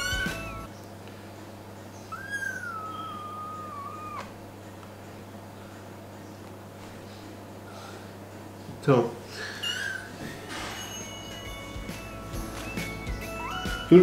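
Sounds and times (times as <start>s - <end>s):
kitten meowing: 0.0s - 0.7s, 2.1s - 4.3s, 13.3s - 13.8s.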